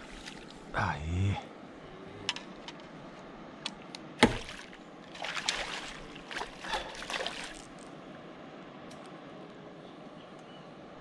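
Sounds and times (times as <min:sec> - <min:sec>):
fish splashing in a net: 0:04.2 - 0:07.8.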